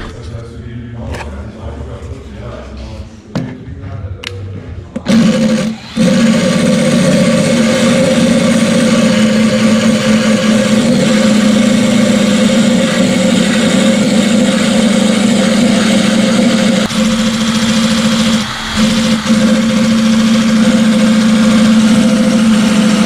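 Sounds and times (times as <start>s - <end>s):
drill wire brush stripping rust: 5.0s - 23.0s.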